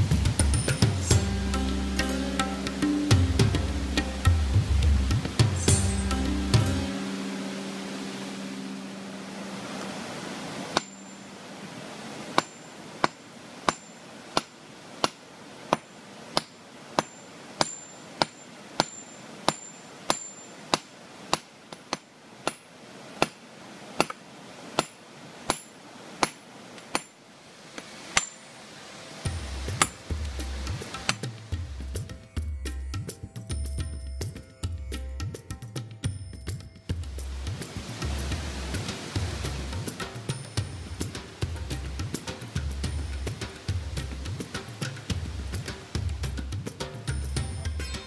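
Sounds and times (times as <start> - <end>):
hammer striking stone: 12.4 - 23.4, 24.8 - 27.2, 28.2 - 28.4, 29.3 - 30.0, 30.7 - 31.3.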